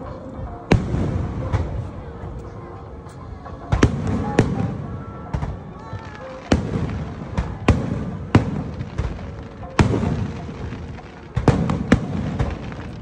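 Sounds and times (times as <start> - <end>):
fireworks bangs: 3.7 - 13.0.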